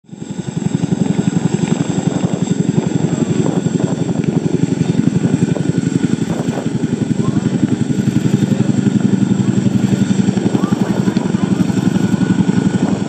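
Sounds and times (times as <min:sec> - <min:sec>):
helicopter rotors thudding: 0:00.1 - 0:13.0.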